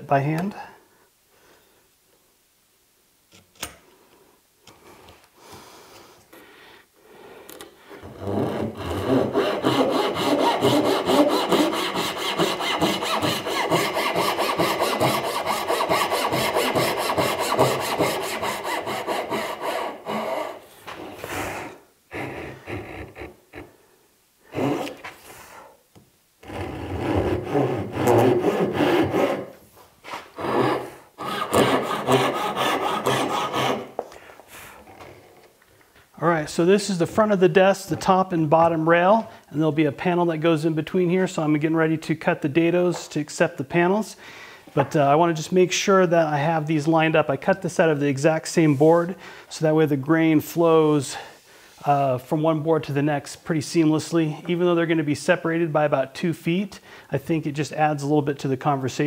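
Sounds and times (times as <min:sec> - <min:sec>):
handsaw strokes: 0:08.0 - 0:23.7, 0:26.4 - 0:34.0.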